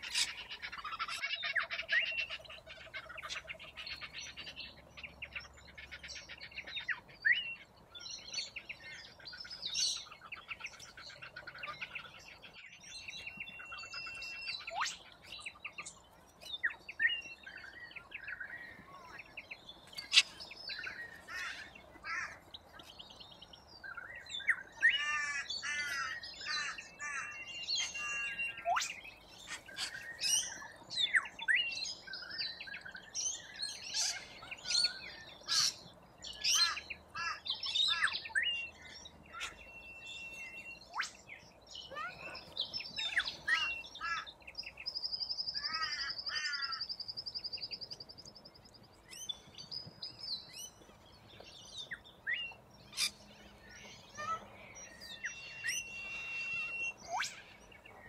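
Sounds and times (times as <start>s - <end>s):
flock of birds screeching: 0.0s - 4.5s, 19.9s - 22.5s, 24.4s - 31.6s, 33.3s - 35.8s, 36.4s - 41.2s, 41.8s - 44.4s, 45.6s - 46.9s, 52.9s - 57.7s.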